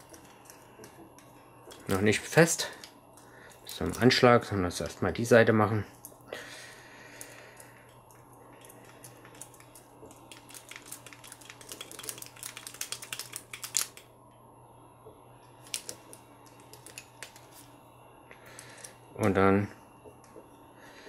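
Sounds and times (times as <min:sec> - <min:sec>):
plastic parts clicking and rattling: 0:08.6 - 0:14.0.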